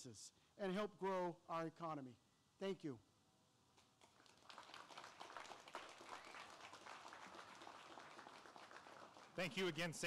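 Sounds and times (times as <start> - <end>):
small crowd applause: 4.0 - 9.8.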